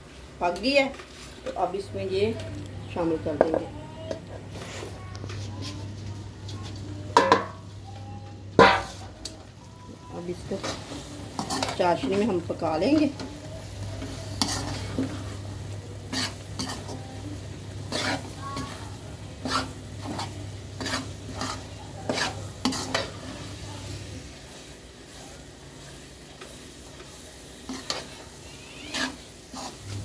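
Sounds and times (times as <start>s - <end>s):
soft sizzle: 0.0s - 30.0s
metal spoon scraping pan: 10.4s - 13.2s, 14.0s - 15.4s, 16.1s - 17.1s, 17.8s - 18.8s, 19.4s - 23.5s, 27.7s - 29.9s.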